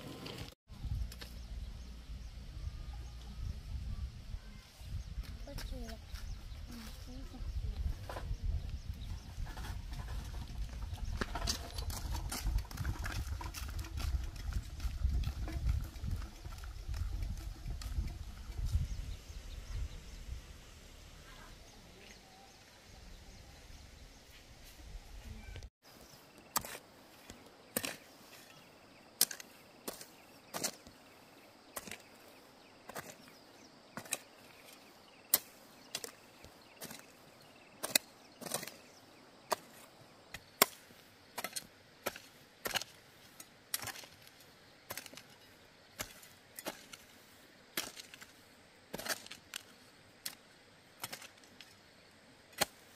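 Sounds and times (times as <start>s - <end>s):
hoe striking dry soil: 7.9s - 19.2s, 26.0s - 31.1s, 31.7s - 52.9s.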